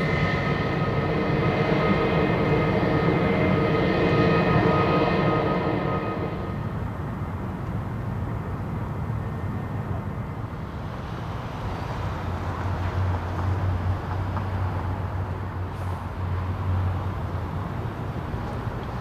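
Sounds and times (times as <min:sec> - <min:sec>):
jet engine hiss: 0:00.0 - 0:07.0
low hum: 0:00.0 - 0:07.4
jet engines rumbling at taxi: 0:00.0 - 0:19.0.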